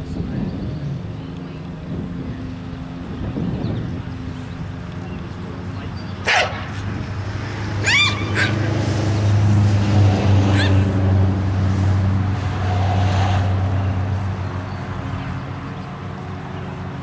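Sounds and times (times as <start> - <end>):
car passing: 0.0 - 17.0
dog whining: 7.8 - 8.6.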